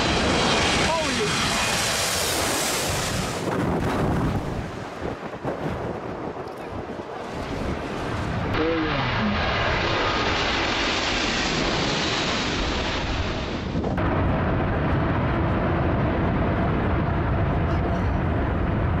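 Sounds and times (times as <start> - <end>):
jet airliner passing overhead: 0.0 - 19.0
jet engines on runway: 0.0 - 19.0.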